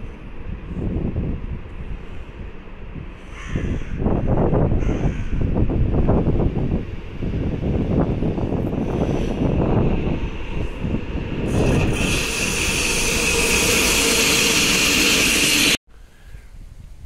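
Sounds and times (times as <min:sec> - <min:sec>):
locomotive wheels rumbling on rail: 0:00.0 - 0:15.8
outdoor background noise: 0:00.0 - 0:17.0.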